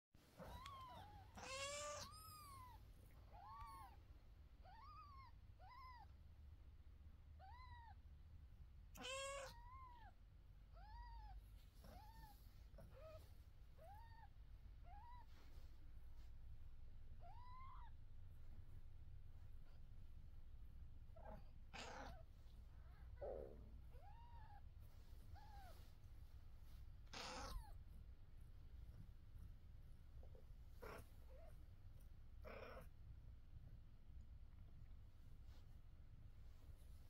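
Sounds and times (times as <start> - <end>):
cat meowing: 0.4 - 2.8, 9.0 - 10.1, 17.2 - 17.9, 21.2 - 22.2, 27.1 - 27.8.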